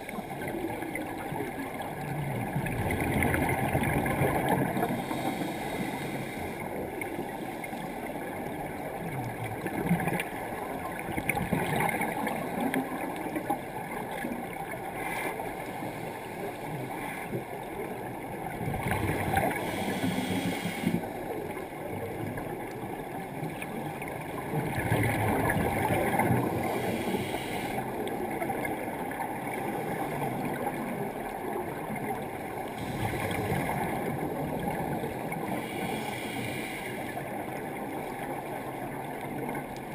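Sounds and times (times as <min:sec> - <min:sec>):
bubbles gurgling: 0:00.0 - 0:05.2, 0:23.8 - 0:27.1, 0:32.8 - 0:35.5
underwater rumble: 0:00.0 - 0:39.9
regulator breathing: 0:04.9 - 0:06.8, 0:19.5 - 0:21.1, 0:26.6 - 0:27.9.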